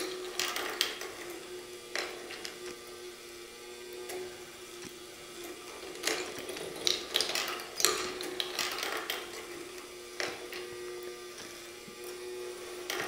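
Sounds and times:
steel balls clacking on wire and wood: 0:00.0 - 0:02.8, 0:05.4 - 0:10.7, 0:12.8 - 0:13.0.

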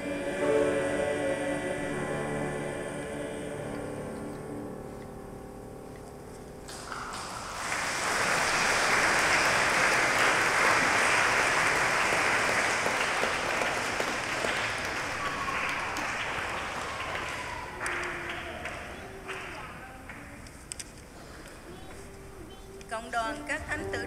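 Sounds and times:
audience applauding: 0:06.7 - 0:20.3.

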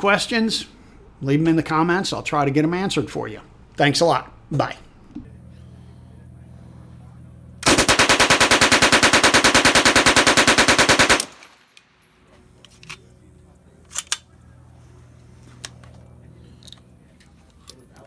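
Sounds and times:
submachine gun automatic burst: 0:07.6 - 0:11.6.

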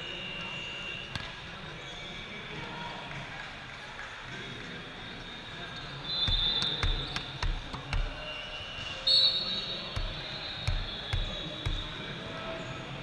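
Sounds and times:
referee's whistle: 0:00.0 - 0:02.2, 0:05.4 - 0:12.1
hum of large hall: 0:00.0 - 0:13.0
volleyballs thudding on floor: 0:06.3 - 0:08.2, 0:10.0 - 0:11.9.

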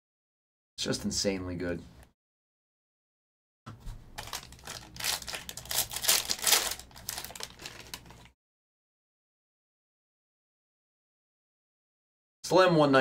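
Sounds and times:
foil wrapper crinkling: 0:04.2 - 0:08.4.

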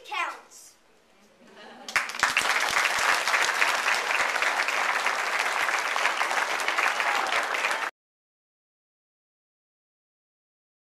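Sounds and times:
audience applauding: 0:01.9 - 0:07.9.

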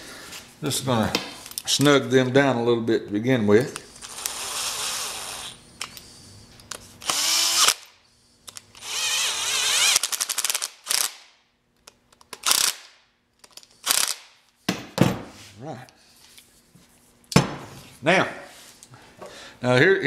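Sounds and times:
drill motor whine: 0:04.0 - 0:05.6, 0:07.0 - 0:07.8, 0:08.8 - 0:10.0.

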